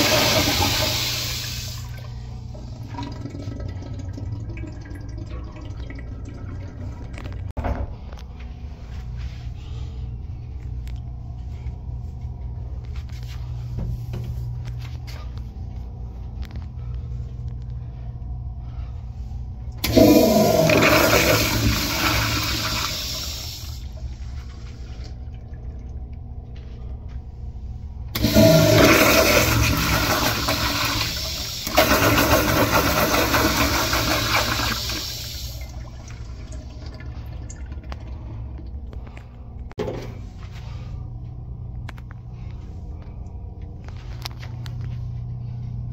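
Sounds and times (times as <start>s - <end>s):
toilet flushing: 0.0s - 7.5s, 19.8s - 26.2s, 28.1s - 39.2s.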